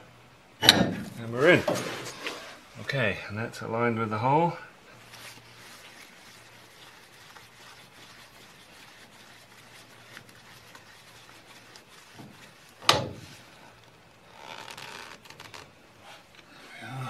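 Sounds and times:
paper towel rubbing metal: 4.9 - 16.3.

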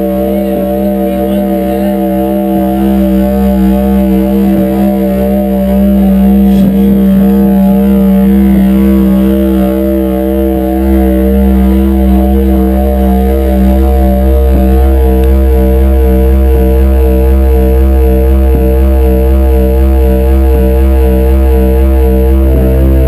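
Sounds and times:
industrial electronic drone: 0.0 - 23.0.

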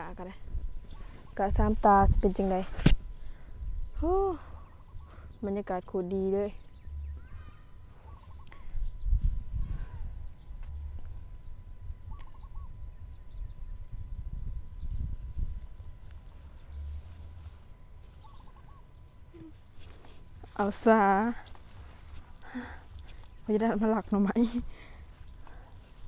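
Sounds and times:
insects chirring: 0.0 - 26.0
warbling bird call: 6.7 - 8.8, 12.0 - 12.8, 18.1 - 19.8.

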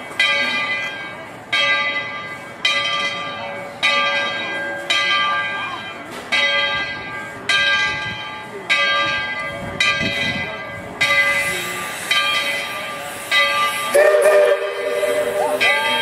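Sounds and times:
steam locomotive bell ringing: 0.0 - 16.0
steam whistle chord: 13.8 - 16.0.

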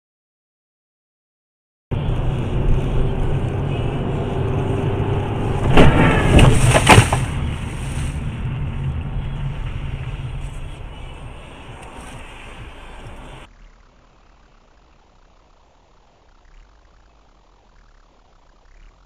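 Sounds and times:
car engine and road noise: 1.9 - 19.0
loud collision bangs: 5.6 - 7.5.

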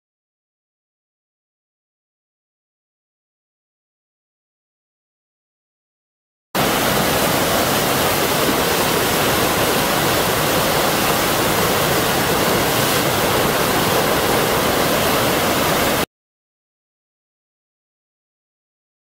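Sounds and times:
whitewater roaring: 6.6 - 16.1.

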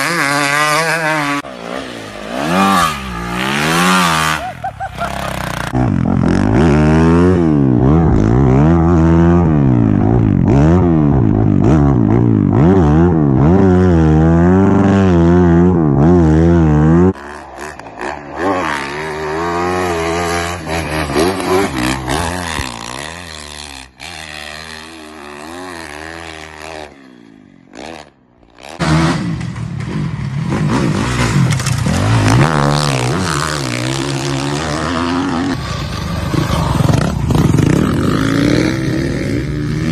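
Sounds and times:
dirt bike engines revving: 0.0 - 39.9.

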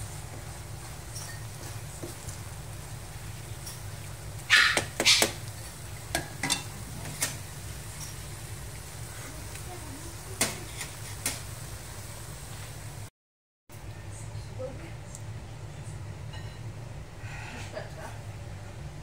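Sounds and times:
wooden spatula stirring rice: 0.0 - 4.0
spatula scraping and tapping pan: 0.3 - 2.4.

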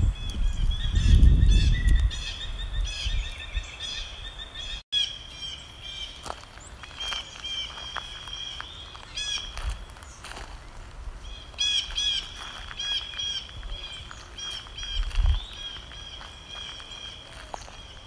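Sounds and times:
birds chirping: 0.0 - 18.0.

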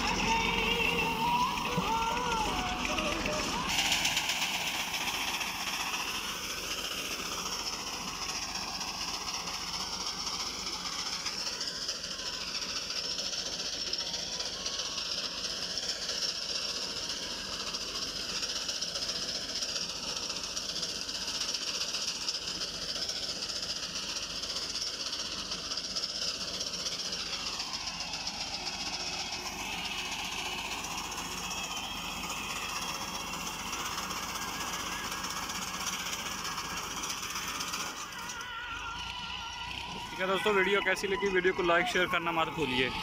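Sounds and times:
reaper clattering rattle: 0.0 - 43.0
tractor diesel engine running: 0.0 - 43.0.

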